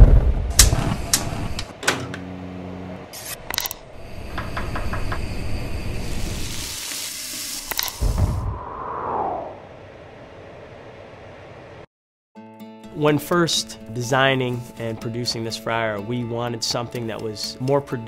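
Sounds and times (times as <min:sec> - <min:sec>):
gas burner flames hissing: 0:00.5 - 0:03.2, 0:03.9 - 0:09.4
low thump: 0:08.0 - 0:09.3.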